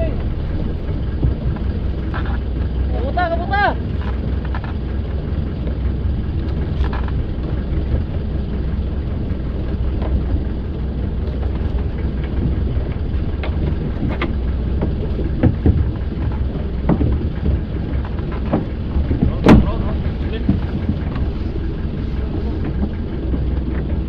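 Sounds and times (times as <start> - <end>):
boat engine rumbling: 0.0 - 24.0
wind buffeting microphone: 0.0 - 24.0
short knocks: 13.4 - 21.3.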